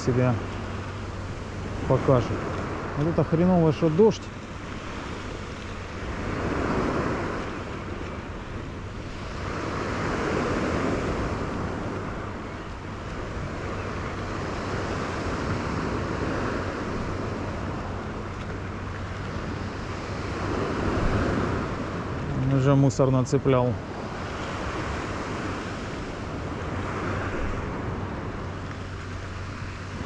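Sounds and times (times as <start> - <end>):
wind on microphone: 0.0 - 22.6
surf washing on shore: 0.0 - 30.0.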